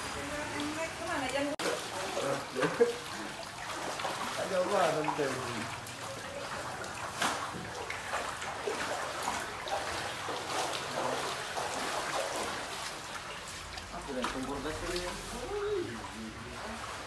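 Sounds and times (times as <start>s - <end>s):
footsteps wading through water: 0.0s - 17.0s
moving water: 0.0s - 17.0s.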